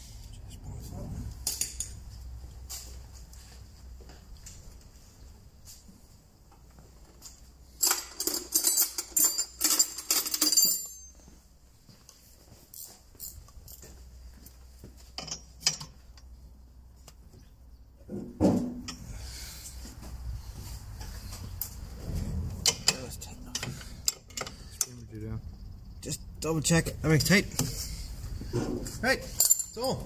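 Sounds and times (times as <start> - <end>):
steel tools clinking: 7.8 - 11.3, 15.2 - 16.3, 22.7 - 25.0, 29.2 - 30.0.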